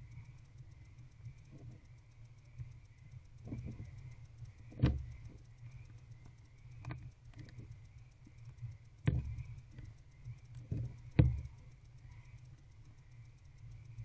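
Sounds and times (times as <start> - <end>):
steady low hum: 0.0 - 14.0
knocks and thumps on wooden box: 4.8 - 5.3, 9.1 - 9.5, 10.7 - 11.6.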